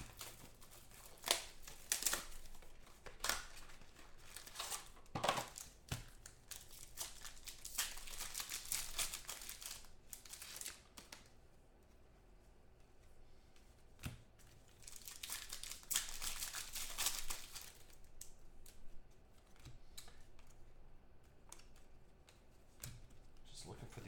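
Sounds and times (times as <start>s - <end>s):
foil wrappers crinkling and tearing: 0.0s - 11.4s, 14.6s - 18.9s.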